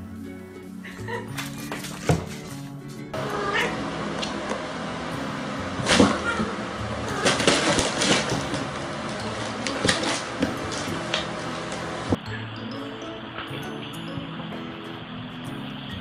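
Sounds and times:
cats scuffling on wooden floor: 0:01.3 - 0:04.4, 0:07.1 - 0:11.9.

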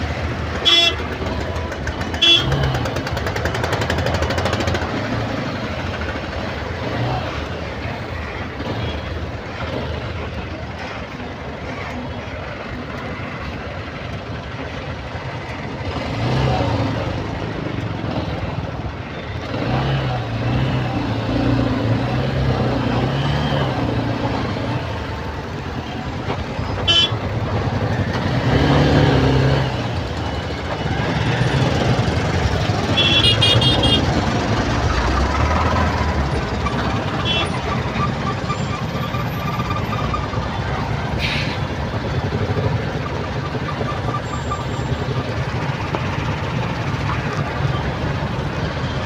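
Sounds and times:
slow road traffic: 0:00.0 - 0:49.0
car horn toot: 0:00.6 - 0:01.1, 0:02.2 - 0:02.6, 0:26.8 - 0:27.2, 0:32.9 - 0:34.1.

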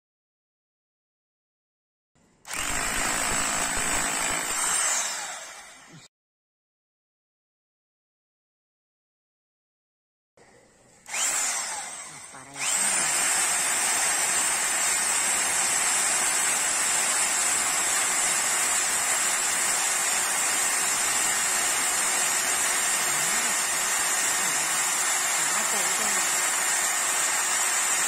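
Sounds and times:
power drill drilling into stone: 0:02.5 - 0:06.1, 0:11.1 - 0:28.0.

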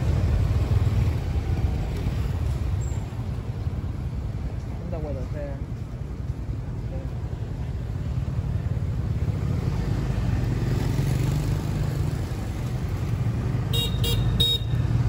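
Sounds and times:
street traffic rumble: 0:00.0 - 0:15.0
vehicle horn beeps: 0:13.7 - 0:14.8.

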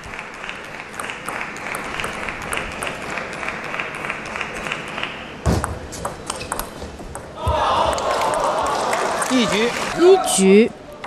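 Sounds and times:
ping pong ball clicking off rackets: 0:00.5 - 0:03.8.

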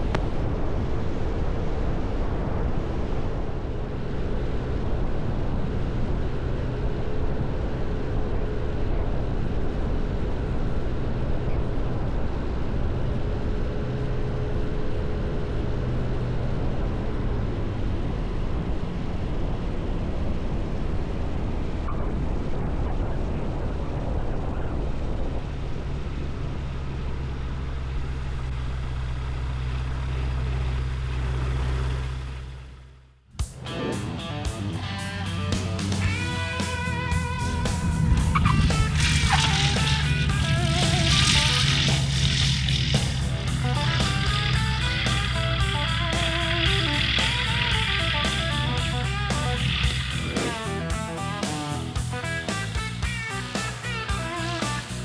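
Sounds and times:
light aircraft engine and propeller: 0:00.0 - 0:55.0
rushing air: 0:36.0 - 0:53.8.

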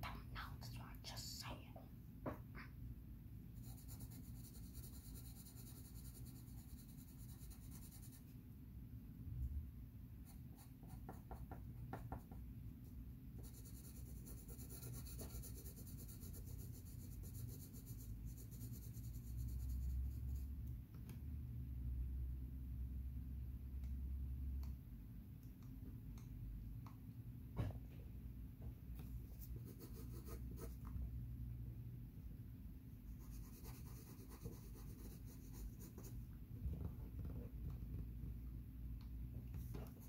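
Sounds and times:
pencil scratching on paper: 0:03.6 - 0:08.3, 0:13.4 - 0:20.5, 0:29.4 - 0:30.8, 0:33.2 - 0:36.2.

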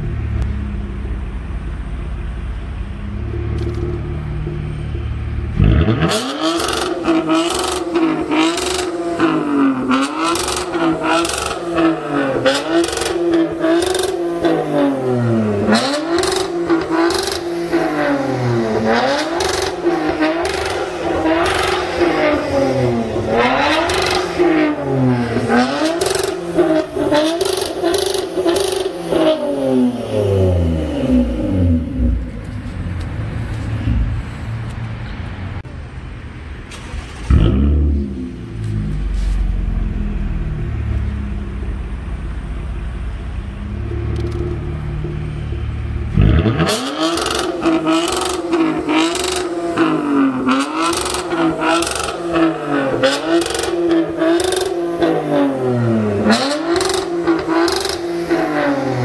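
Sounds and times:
engine idling with deep rumble: 0:00.0 - 0:05.8, 0:37.0 - 0:46.5
car engine revving in blips: 0:03.0 - 0:34.8, 0:36.7 - 0:42.4, 0:43.4 - 0:59.0.

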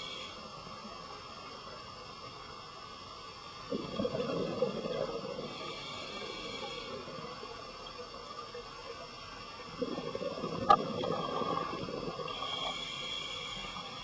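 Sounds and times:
underwater exhaled bubbles gurgling: 0:03.6 - 0:08.2, 0:09.1 - 0:14.0.

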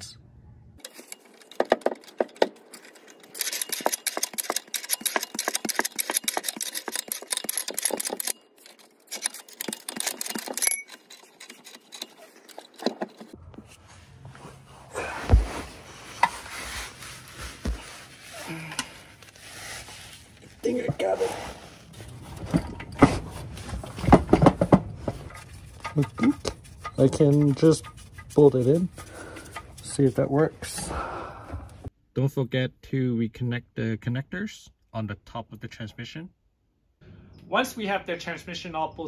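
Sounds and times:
rapid ratchet clicking: 0:03.3 - 0:08.4.

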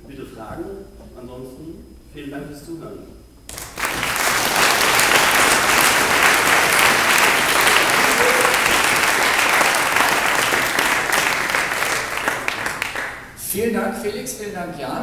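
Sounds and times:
audience applauding: 0:03.5 - 0:13.4.

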